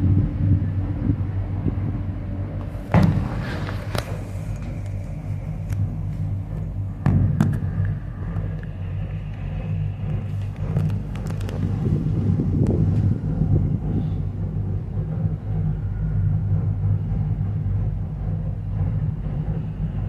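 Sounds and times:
gondola cabin rumble and hum: 0.0 - 20.0
sharp knocks and clicks: 2.9 - 9.5.

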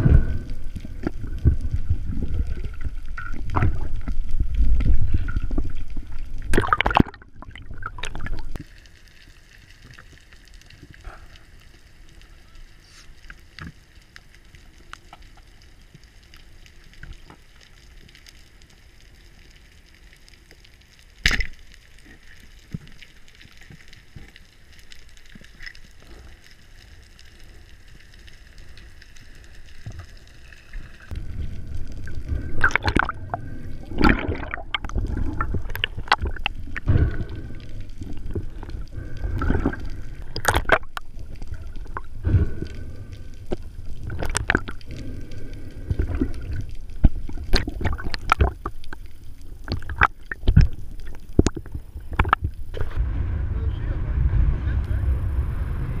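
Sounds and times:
churning water gurgling: 0.0 - 8.6, 30.6 - 53.0
faint underwater hiss: 8.3 - 19.0, 23.4 - 56.0.

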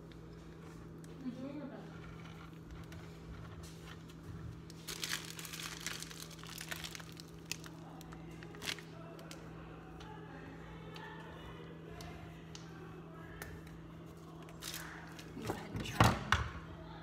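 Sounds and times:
plastic bag crinkling: 0.9 - 9.5, 14.2 - 15.7
sharp plastic crackles: 1.9 - 9.4.

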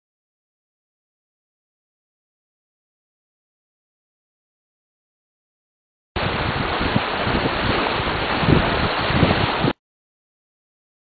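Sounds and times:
wind buffeting microphone: 6.2 - 9.8.

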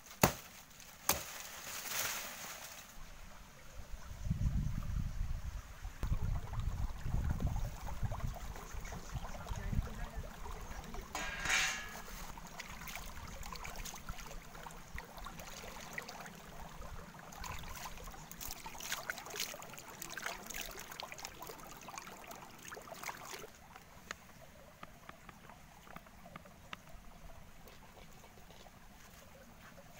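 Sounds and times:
low uneven rumble: 6.0 - 18.4
stream running over rocks: 6.0 - 29.9.

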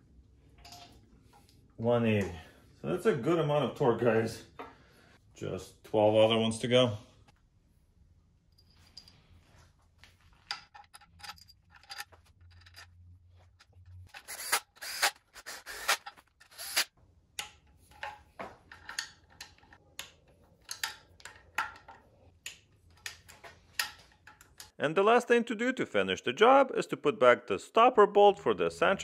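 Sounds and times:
ratchet wrench clicking: 14.1 - 16.9.

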